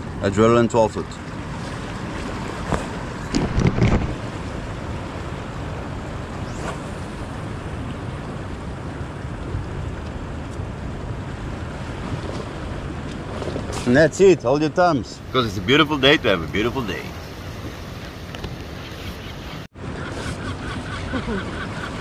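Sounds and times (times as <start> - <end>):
wind rushing over microphone: 0.0 - 21.2
waves washing on rocky shore: 15.2 - 18.4.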